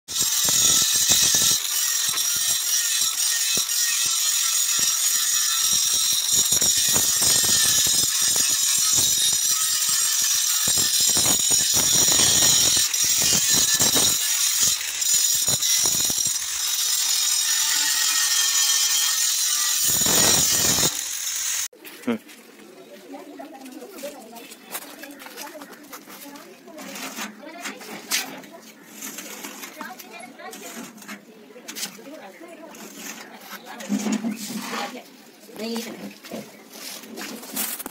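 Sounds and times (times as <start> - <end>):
angle grinder on steel: 0.1 - 21.7.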